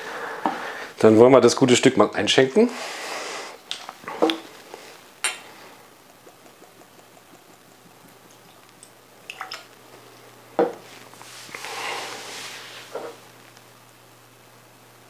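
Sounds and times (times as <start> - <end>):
whisky pouring into a glass: 4.4 - 10.9.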